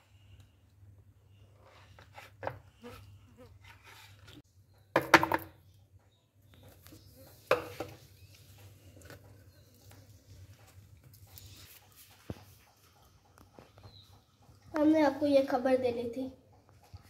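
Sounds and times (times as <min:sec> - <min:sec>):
knife knocking and scraping plastic tub: 0:07.2 - 0:08.1.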